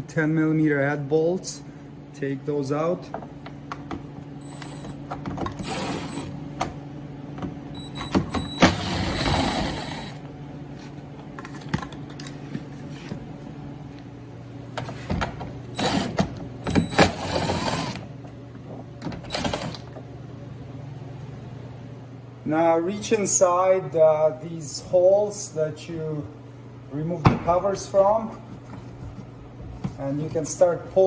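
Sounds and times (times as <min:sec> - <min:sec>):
impact driver running: 0:04.5 - 0:06.4, 0:08.1 - 0:10.2, 0:15.8 - 0:18.1.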